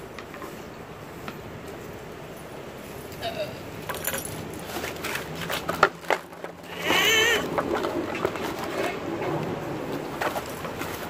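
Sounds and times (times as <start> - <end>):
dog whining: 6.7 - 7.5.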